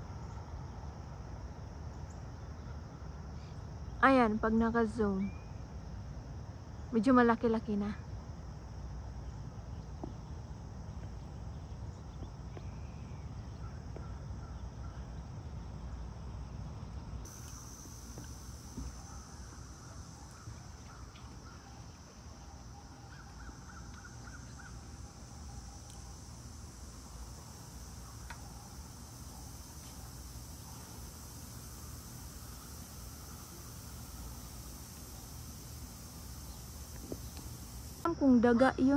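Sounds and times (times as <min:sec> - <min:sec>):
high insect drone: 0:00.0 - 0:38.9
distant bird calls: 0:17.3 - 0:38.0.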